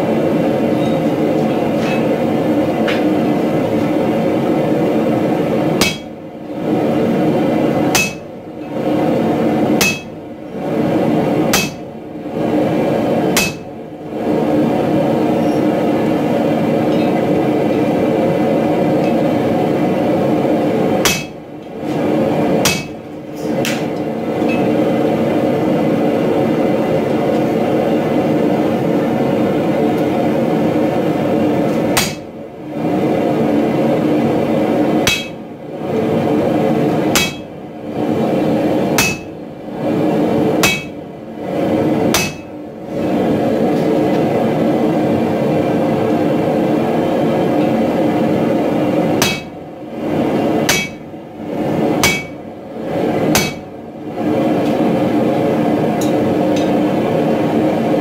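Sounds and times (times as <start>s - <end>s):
sledgehammer striking hot steel: 5.7s - 6.2s, 7.9s - 8.3s, 9.8s - 10.2s, 11.5s - 11.9s, 13.3s - 13.7s, 21.0s - 21.4s, 22.6s - 23.0s, 31.9s - 32.3s, 35.0s - 35.4s, 37.1s - 37.5s, 38.9s - 39.4s, 40.6s - 41.0s, 42.1s - 42.5s, 49.2s - 49.5s, 50.6s - 51.0s, 52.0s - 52.4s, 53.3s - 53.7s.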